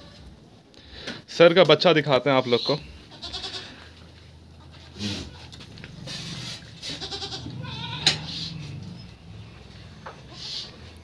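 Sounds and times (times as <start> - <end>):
goats bleating: 3.0 - 4.0, 4.9 - 8.6.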